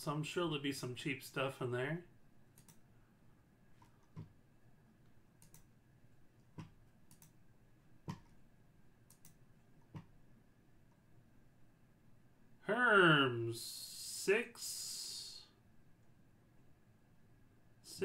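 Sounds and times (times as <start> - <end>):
soft sharp clicks: 2.5 - 2.8, 5.4 - 5.7, 6.4 - 7.4, 9.0 - 10.2.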